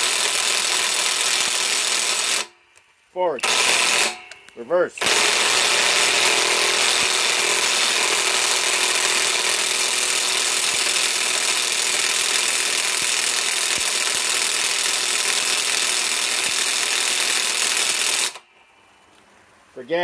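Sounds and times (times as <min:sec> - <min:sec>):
impact wrench hammering: 0:03.4 - 0:18.4.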